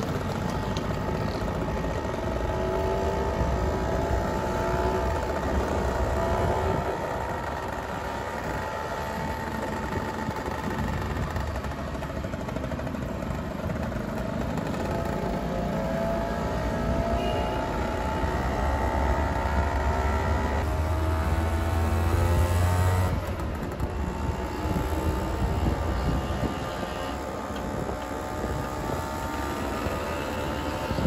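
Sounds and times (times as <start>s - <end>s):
scooter engines revving: 0.0s - 31.0s
low wind rumble: 19.7s - 31.0s.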